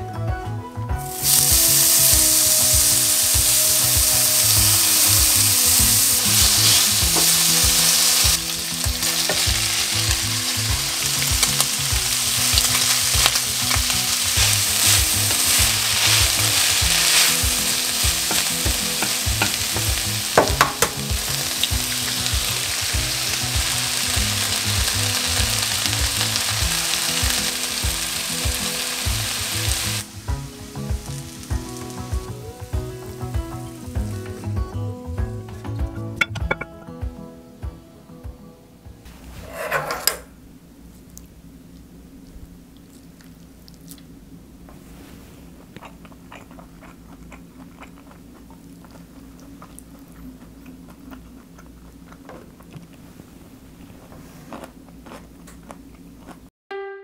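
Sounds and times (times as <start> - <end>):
bacon and cabbage sizzling: 1.0 - 35.6
wooden spatula scraping pan: 39.1 - 40.3.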